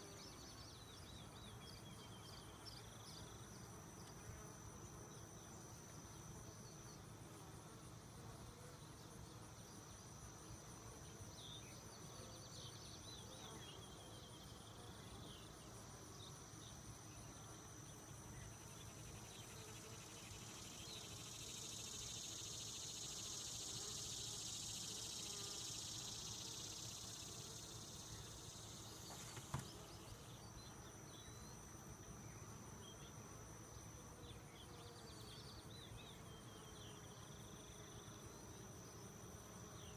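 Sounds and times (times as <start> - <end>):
crickets chirring: 9.6 - 39.9.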